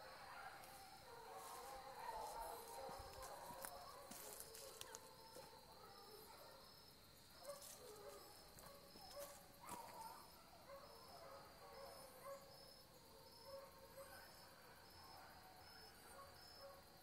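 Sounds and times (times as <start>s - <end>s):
hounds baying: 0.0s - 6.6s, 7.4s - 12.5s.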